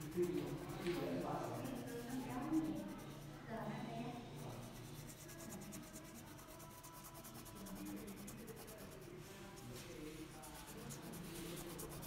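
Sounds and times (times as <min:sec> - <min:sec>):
crayon scribbling on paper: 0:00.0 - 0:03.2, 0:04.4 - 0:09.2, 0:10.4 - 0:12.0.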